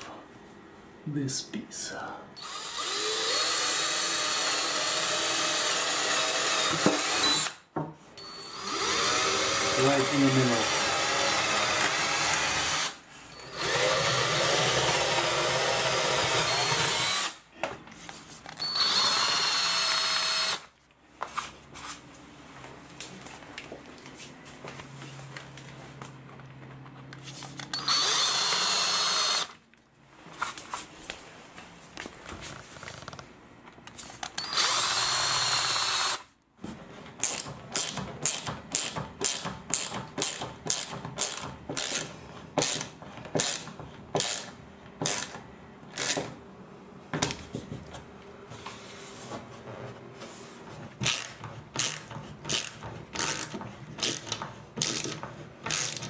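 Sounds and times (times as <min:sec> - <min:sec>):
power drill drilling: 0:02.4 - 0:07.6, 0:08.4 - 0:17.4, 0:18.6 - 0:20.7, 0:27.7 - 0:29.6, 0:34.4 - 0:36.3.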